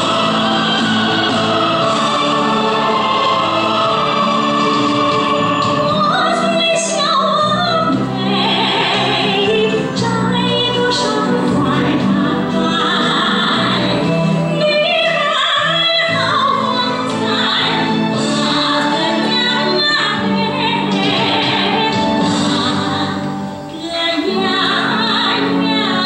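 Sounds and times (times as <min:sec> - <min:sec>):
instrumental accompaniment: 0:00.0 - 0:26.0
woman singing operatically: 0:05.2 - 0:26.0.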